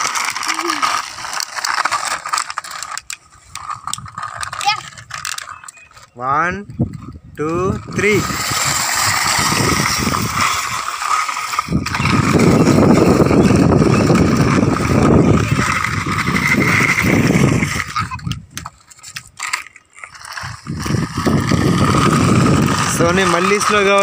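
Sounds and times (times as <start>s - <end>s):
clicks and knocks of toys handled: 0.0s - 6.1s, 17.7s - 20.5s
toy truck wheels on concrete: 0.0s - 24.0s.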